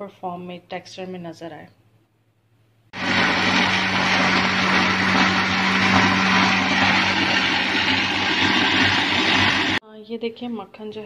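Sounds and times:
blender motor whirring: 3.0s - 9.8s.

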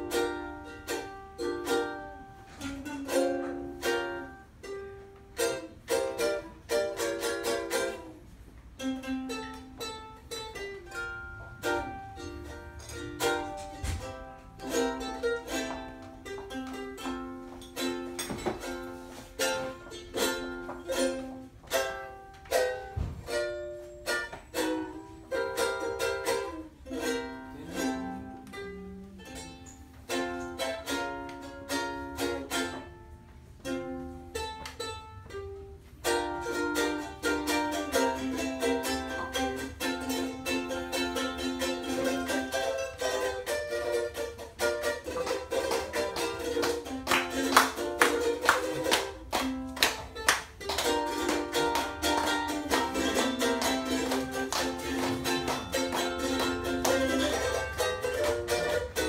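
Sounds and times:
ukulele playing: 0.0s - 59.0s.

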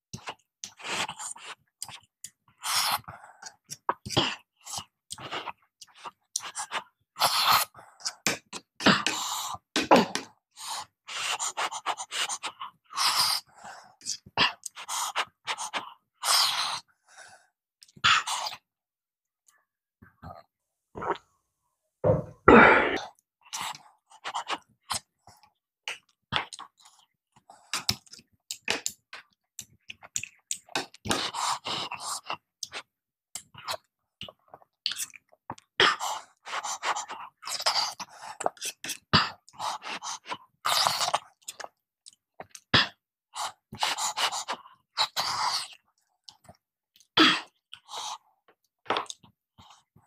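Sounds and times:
wet chewing and lip smacking: 0.2s - 2.4s, 27.7s - 35.8s, 36.4s - 47.9s
loud thump: 22.0s - 22.7s.

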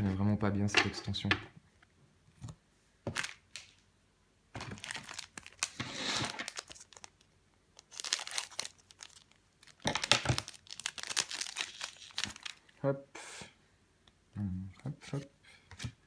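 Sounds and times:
foil wrapper crinkling: 4.6s - 12.7s.

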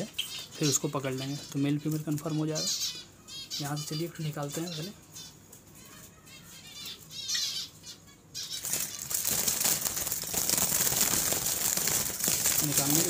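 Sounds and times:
faint high bird chirps: 0.0s - 9.2s
flurry of wingbeats: 8.6s - 13.0s.

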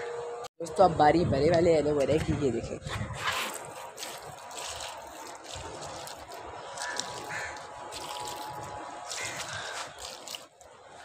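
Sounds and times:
water trickling onto soil: 3.2s - 11.0s.

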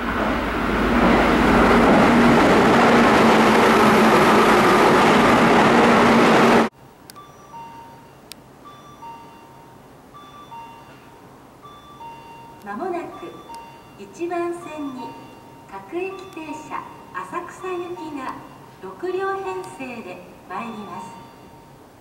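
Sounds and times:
electric train rushing past: 0.0s - 6.7s
two-note electronic chime: 7.2s - 21.9s.

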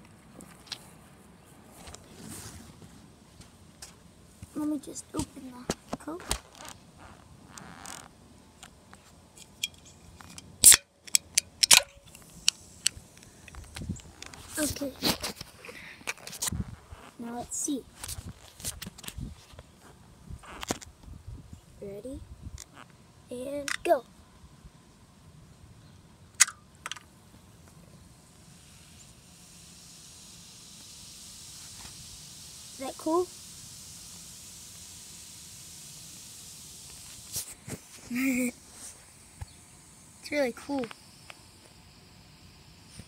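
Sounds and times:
can pull tab clicks and snaps: 9.4s - 13.3s, 23.6s - 23.9s, 26.4s - 27.1s
soda fizzing in a can: 28.2s - 43.0s.

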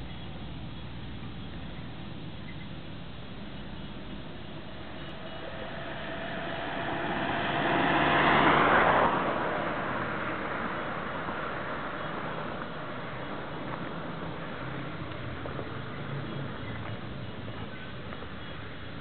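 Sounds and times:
diesel engine driving slowly: 0.0s - 19.0s
vehicle driving past: 3.8s - 17.5s.

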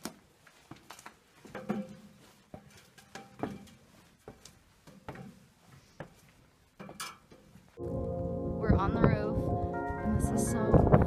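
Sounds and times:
boots clanking on metal ladder rungs: 0.0s - 7.7s.

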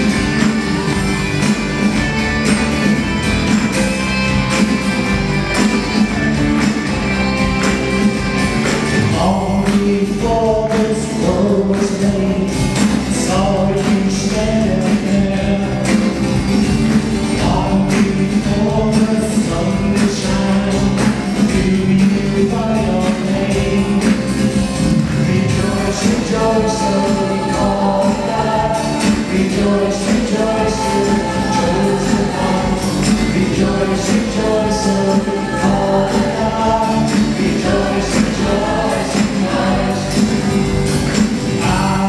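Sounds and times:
live band playing: 0.0s - 42.0s
person singing: 17.4s - 24.4s, 25.2s - 42.0s.

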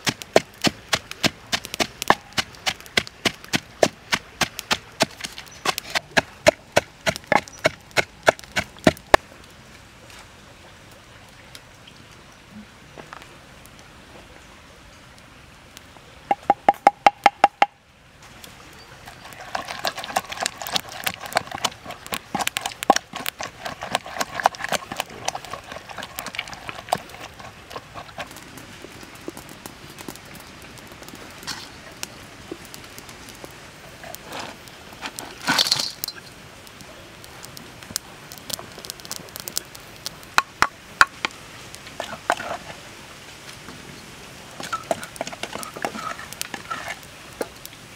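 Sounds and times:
pestle knocking in wooden mortar: 0.0s - 9.0s, 16.3s - 17.7s
wood fire crackling: 0.0s - 10.2s, 18.2s - 47.9s.

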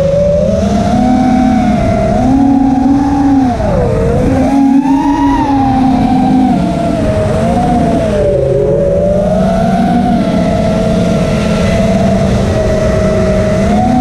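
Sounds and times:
drone motors whining: 0.0s - 14.0s
prop wash and wind rush: 0.0s - 14.0s.

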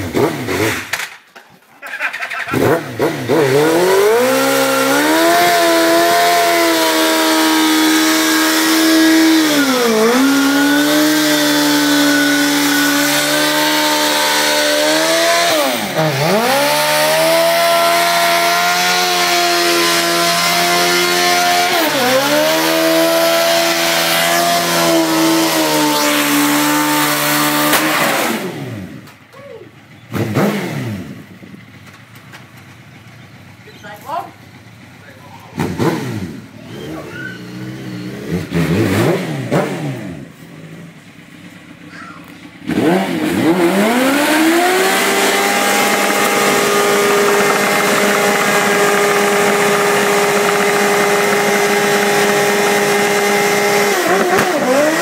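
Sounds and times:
motorcycle engine revving: 0.0s - 1.2s, 2.0s - 55.0s
tyre screeching: 35.1s - 38.8s, 41.8s - 42.5s.

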